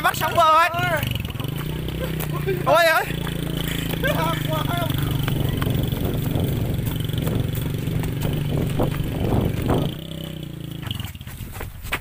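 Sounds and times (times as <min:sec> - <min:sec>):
small motorcycle engine running: 0:00.0 - 0:11.7.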